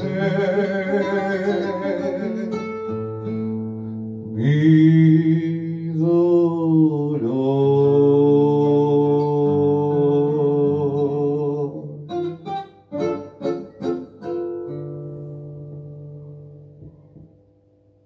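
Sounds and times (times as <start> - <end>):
man singing with vibrato: 0.0 - 3.6, 4.2 - 12.4
sharp plucked guitar chords: 0.0 - 6.0, 7.8 - 17.8
guitar accompaniment: 0.0 - 18.0.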